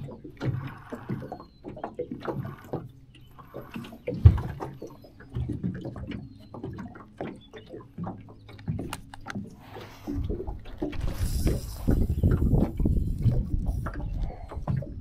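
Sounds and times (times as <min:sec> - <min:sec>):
water slapping against boat hull: 0:00.0 - 0:15.0.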